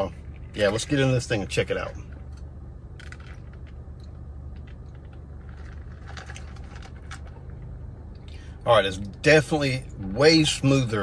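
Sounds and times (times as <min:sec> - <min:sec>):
steady low car cabin hum: 0:00.0 - 0:11.0
ice rattling in plastic cup: 0:05.4 - 0:07.3.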